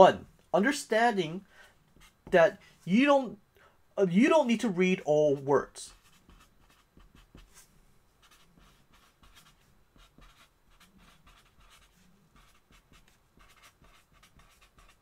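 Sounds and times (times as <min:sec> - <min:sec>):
marker writing on paper: 0:05.9 - 0:07.6, 0:08.2 - 0:15.0.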